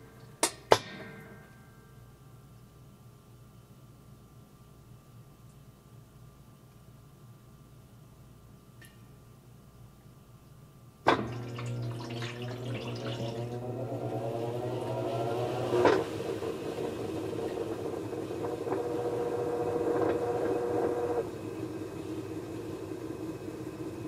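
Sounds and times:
washing machine motor whining: 11.1 - 24.0.

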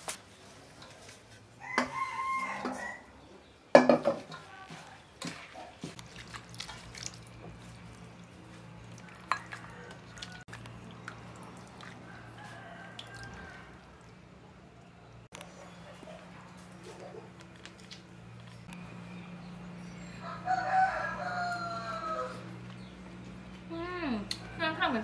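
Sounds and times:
rooster crowing: 1.6 - 3.1, 12.0 - 14.0, 20.2 - 22.6.

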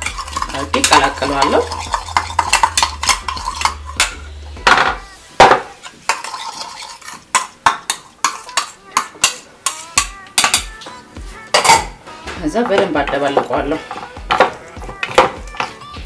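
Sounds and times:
spoon clinking in a bowl: 0.0 - 4.2
dish knocking: 0.0 - 6.3, 11.5 - 15.8.

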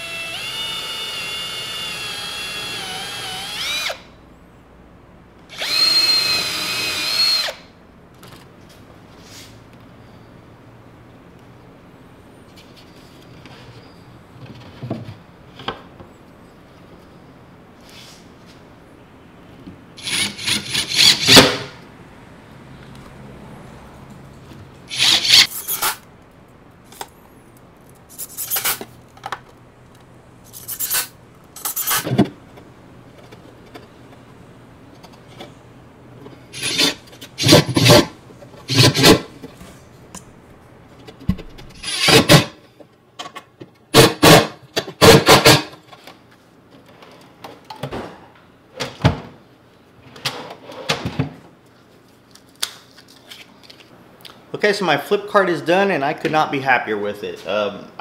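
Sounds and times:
cordless drill running: 0.0 - 4.0, 5.5 - 7.6, 24.9 - 25.5.

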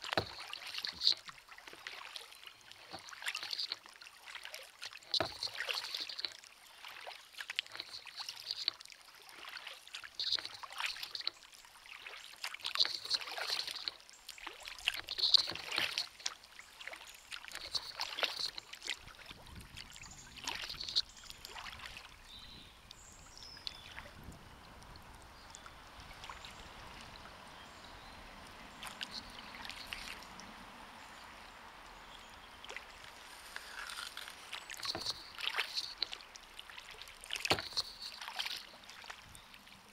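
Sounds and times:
kayak paddle splashing: 0.0 - 39.9
soft wash of water: 0.0 - 39.9.

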